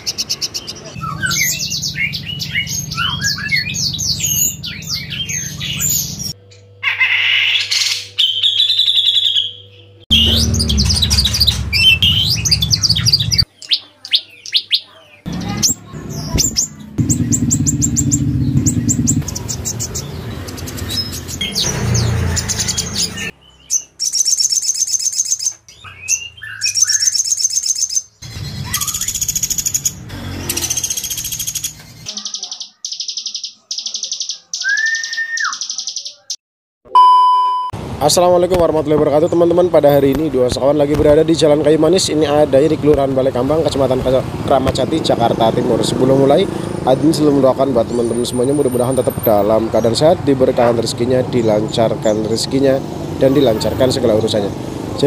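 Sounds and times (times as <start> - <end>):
songbirds singing and trilling: 0.0 - 36.4, 38.6 - 55.0
low hum: 10.1 - 13.4.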